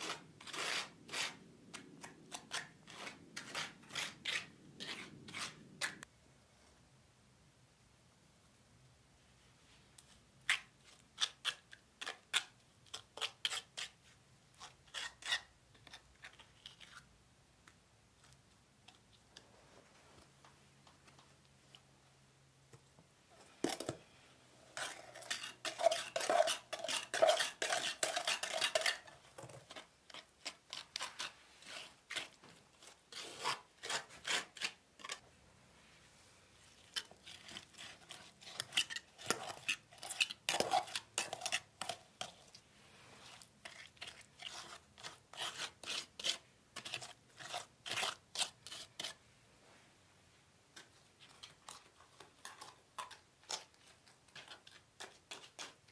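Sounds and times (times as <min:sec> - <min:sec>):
trowel scraping on stone: 0:00.0 - 0:06.1, 0:10.5 - 0:14.0, 0:14.6 - 0:17.0, 0:24.8 - 0:35.2, 0:36.7 - 0:42.6, 0:43.2 - 0:49.2, 0:52.4 - 0:55.9.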